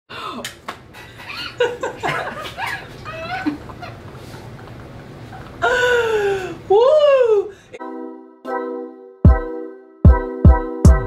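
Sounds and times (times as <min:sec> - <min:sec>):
women laughing: 0:01.0 - 0:07.5.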